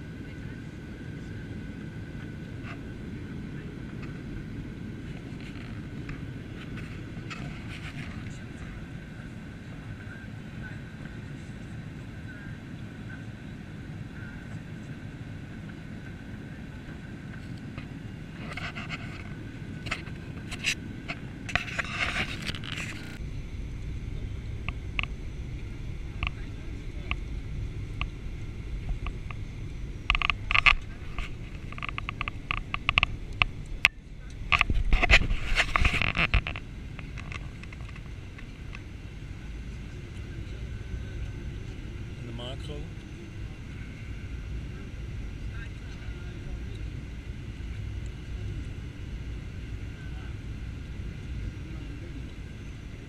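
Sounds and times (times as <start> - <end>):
airflow over fuselage: 0.0 - 53.0
jet engine cabin rumble: 0.0 - 53.0
thin steady whine: 0.0 - 53.0.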